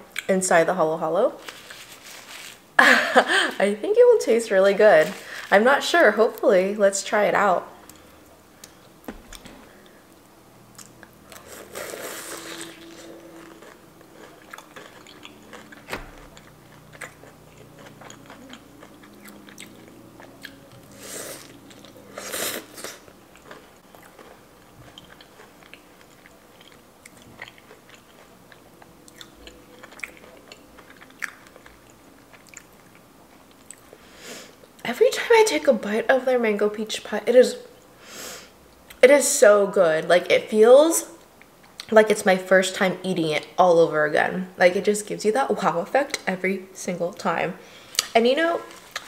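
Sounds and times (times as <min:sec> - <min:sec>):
crunchy biting and chewing: 0:10.8 - 0:33.8.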